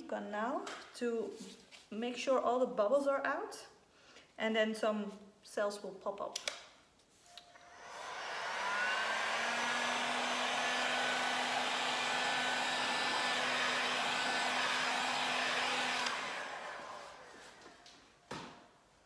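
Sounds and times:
heat gun fan blowing: 0:07.6 - 0:17.7.

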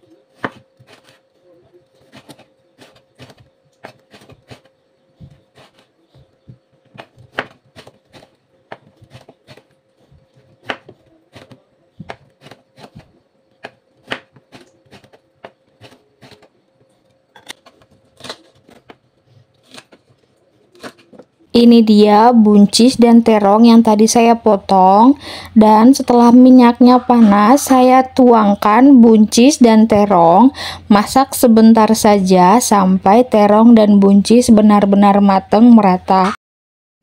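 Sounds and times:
knife cutting on a cutting board: 0:00.3 - 0:01.3, 0:02.0 - 0:16.5, 0:17.4 - 0:20.1, 0:20.7 - 0:21.2.

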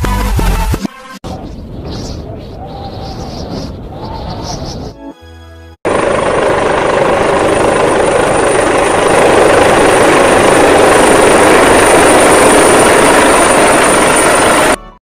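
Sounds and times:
helicopter rotor and engine: 0:05.8 - 0:14.8.

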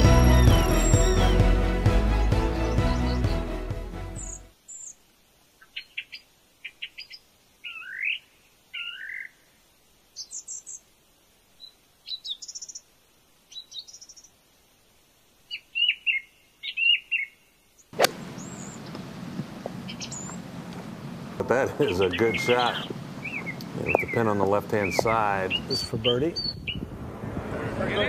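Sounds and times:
small birds chirping: 0:04.1 - 0:14.5, 0:15.4 - 0:20.5, 0:21.5 - 0:27.0
golf club striking ball: 0:18.0 - 0:19.1.

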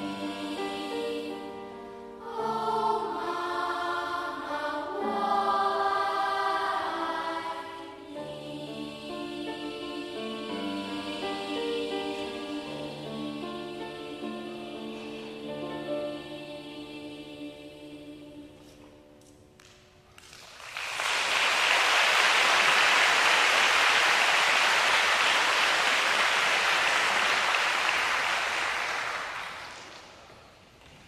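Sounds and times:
children's choir singing: 0:00.0 - 0:19.2
audience applause: 0:20.2 - 0:30.2.

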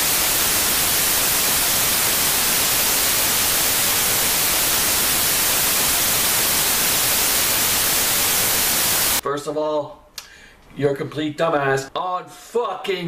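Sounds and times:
television static hiss: 0:00.0 - 0:09.2.

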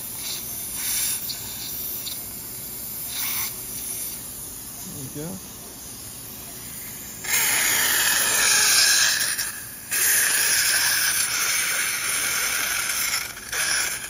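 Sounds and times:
surgical suction hissing: 0:00.0 - 0:02.3, 0:03.0 - 0:04.3.

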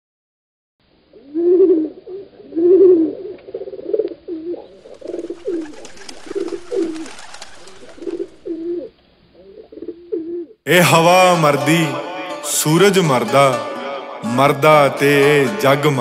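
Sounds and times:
pigeons cooing: 0:01.2 - 0:10.6.

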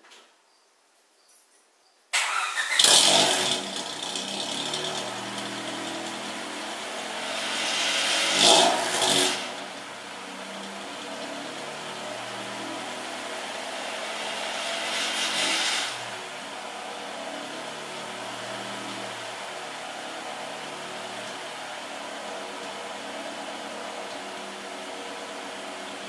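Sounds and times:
car engine starting and idling: 0:02.2 - 0:26.0.

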